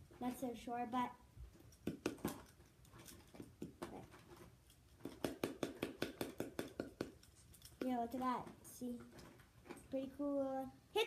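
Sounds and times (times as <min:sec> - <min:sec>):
ball tapping wooden paddle: 0:01.8 - 0:02.4, 0:05.0 - 0:07.2.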